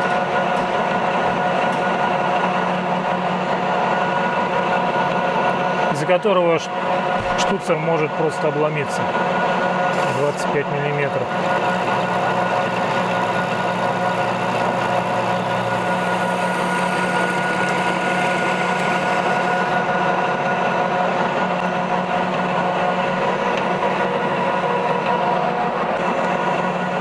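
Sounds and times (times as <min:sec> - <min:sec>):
metal lathe gear hum: 0:00.0 - 0:27.0
turning tool cutting metal: 0:06.8 - 0:27.0.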